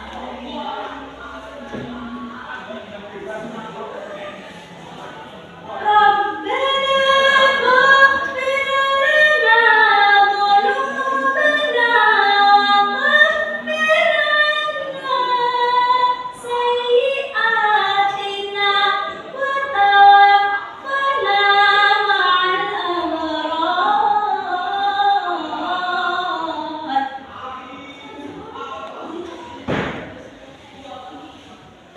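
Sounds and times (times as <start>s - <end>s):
young woman chanting melodically: 5.6s - 27.3s.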